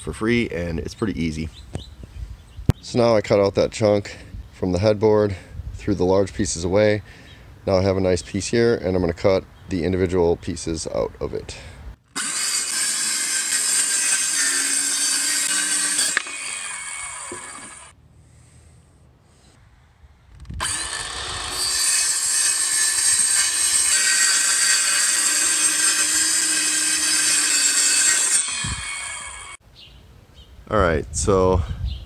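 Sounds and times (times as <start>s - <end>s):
circular saw cutting wood: 12.1s - 18.0s, 20.6s - 29.6s.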